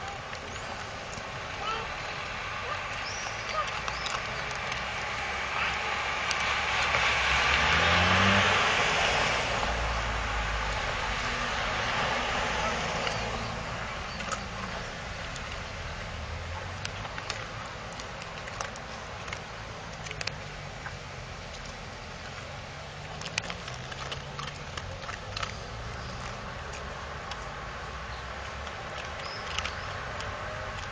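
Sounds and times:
dog crunching dry kibble: 0:02.8 - 0:08.4, 0:16.7 - 0:20.5, 0:23.0 - 0:27.6, 0:28.3 - 0:30.9.

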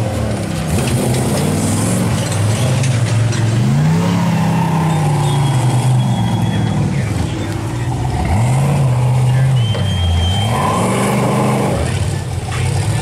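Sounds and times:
buggy engines revving hard: 0:00.0 - 0:13.0.

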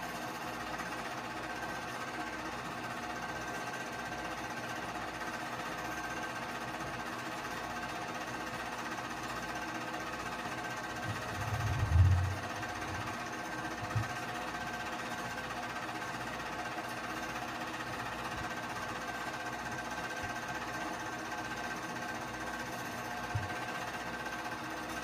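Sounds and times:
projector motor hum: 0:00.0 - 0:25.0
low rumbling thump: 0:11.4 - 0:12.4.

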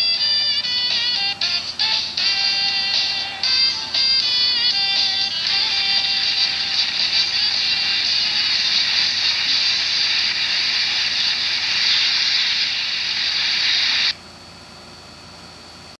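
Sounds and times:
television speaker hiss: 0:00.0 - 0:15.2
faint high whine: 0:00.0 - 0:16.0.

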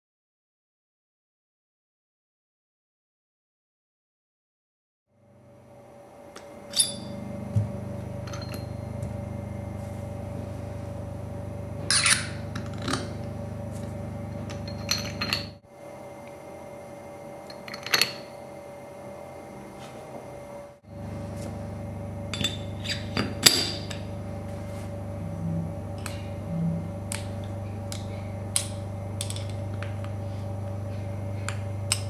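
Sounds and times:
low hum: 0:05.2 - 0:15.6, 0:20.8 - 0:32.0
steel parts clinking: 0:06.7 - 0:07.2, 0:11.9 - 0:13.0, 0:14.4 - 0:15.6.

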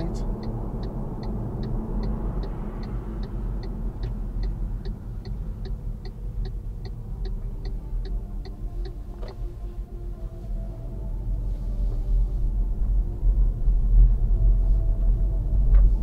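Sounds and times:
car turn signal ticking: 0:00.0 - 0:09.5
engine and road rumble: 0:00.0 - 0:16.0.

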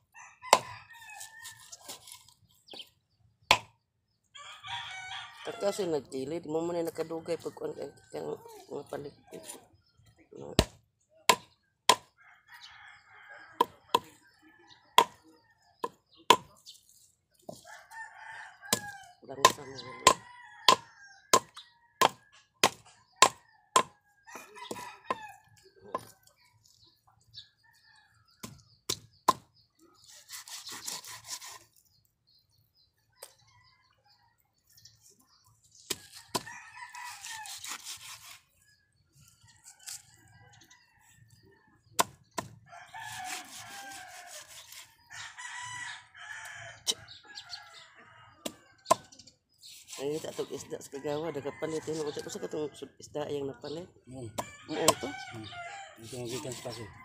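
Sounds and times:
rooster crowing: 0:00.0 - 0:01.8, 0:04.4 - 0:05.9, 0:17.7 - 0:22.3, 0:23.2 - 0:25.5, 0:36.4 - 0:37.6, 0:42.6 - 0:48.4, 0:54.4 - 0:57.0
knife chopping fish on wooden block: 0:03.5 - 0:03.7, 0:15.8 - 0:16.6, 0:18.7 - 0:24.0, 0:35.9 - 0:36.5, 0:42.0 - 0:42.5.

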